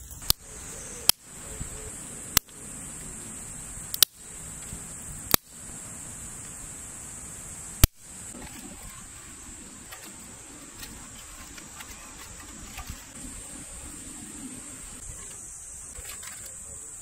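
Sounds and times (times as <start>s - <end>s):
steady high buzz: 0.0s - 17.0s
dry twigs snapping: 3.9s - 4.7s, 5.3s - 5.6s.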